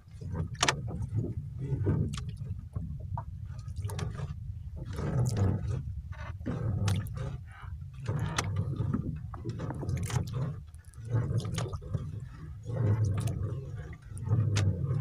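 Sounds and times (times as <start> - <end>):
low rumble: 0.0 - 15.0
water splashing and dripping: 3.6 - 4.2, 6.8 - 7.2, 8.0 - 12.0, 12.8 - 15.0.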